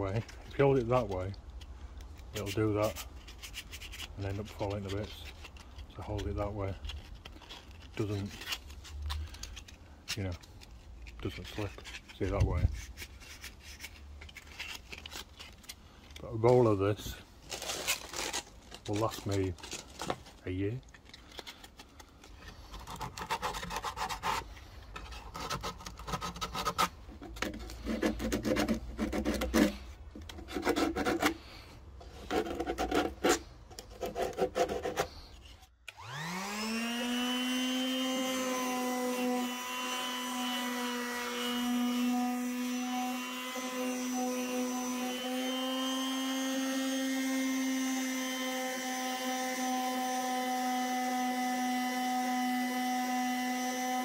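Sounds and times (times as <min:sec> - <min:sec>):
hand sanding wood: 0:22.6 - 0:31.5, 0:32.1 - 0:39.4
electric sander humming: 0:35.9 - 0:54.0.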